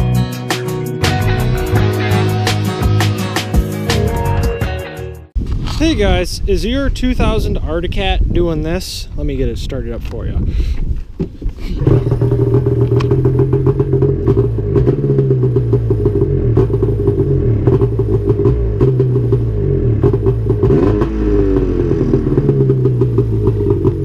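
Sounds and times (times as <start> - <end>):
snowmobile engine starting and running: 11.4 - 24.0.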